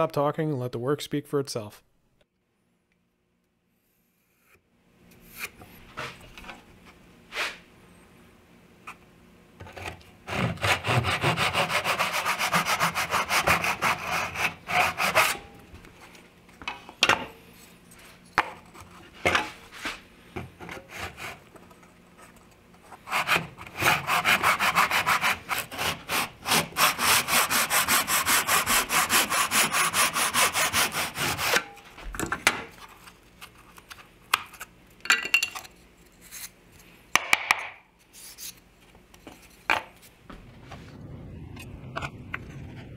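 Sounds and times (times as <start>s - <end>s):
hand saw cutting wood: 10.2s - 15.5s, 20.7s - 21.4s, 23.0s - 31.8s.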